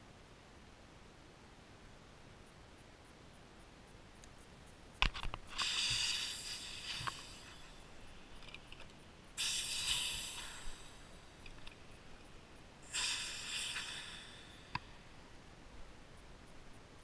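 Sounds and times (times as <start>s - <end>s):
air hissing out of valve: 5.5s - 8.3s, 9.4s - 11.5s, 12.8s - 15.2s.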